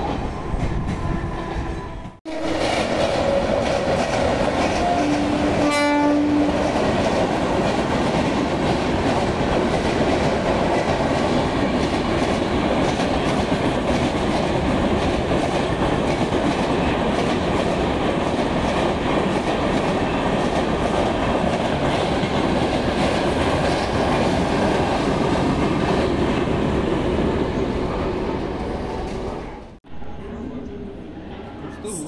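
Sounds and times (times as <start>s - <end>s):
train wheels rumbling on rails: 0.0s - 29.8s
clickety-clack of wheels: 6.6s - 26.3s.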